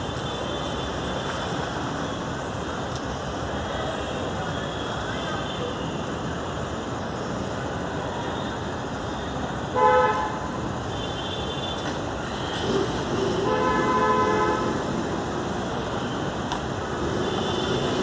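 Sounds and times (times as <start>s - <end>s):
traffic hum: 0.0s - 18.0s
vehicle horns: 9.7s - 15.0s, 17.0s - 18.0s.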